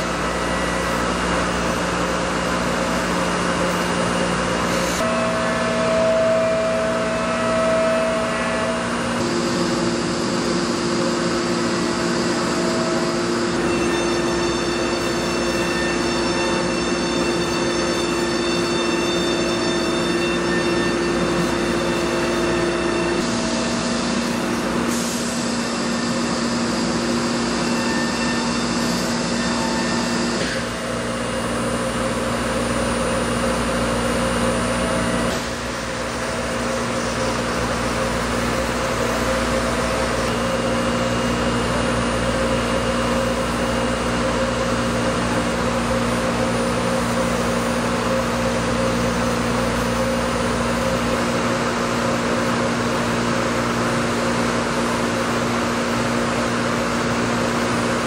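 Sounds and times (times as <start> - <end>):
router machine whine and hiss: 0.0 - 58.0.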